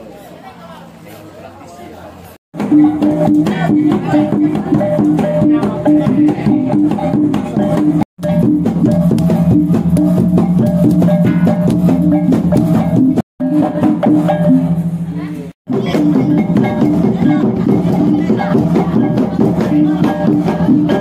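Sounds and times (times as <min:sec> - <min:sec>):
low gongs struck rhythmically: 0:02.6 - 0:21.0.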